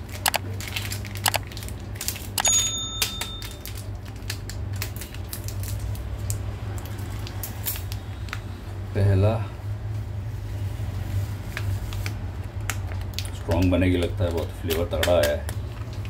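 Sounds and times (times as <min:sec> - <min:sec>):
ringing clink: 0:02.4 - 0:03.7.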